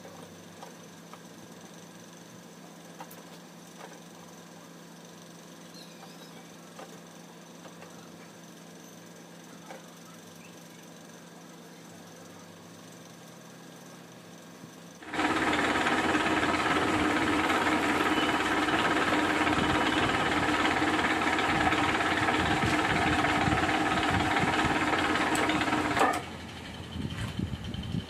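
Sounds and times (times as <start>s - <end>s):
milling machine spindle whine: 5.8s - 28.0s.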